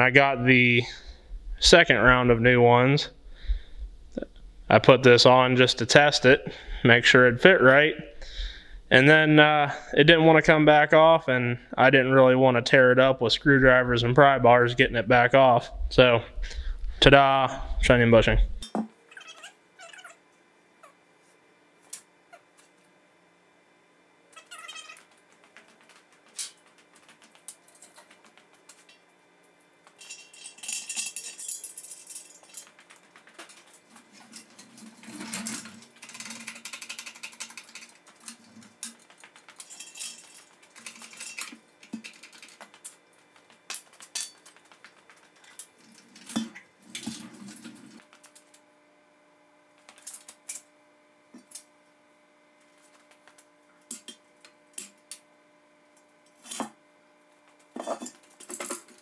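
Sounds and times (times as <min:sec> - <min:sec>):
metal scraping and clattering: 0:29.9 - 0:42.7
steel chain rattling: 0:30.0 - 0:32.9, 0:38.8 - 0:42.6.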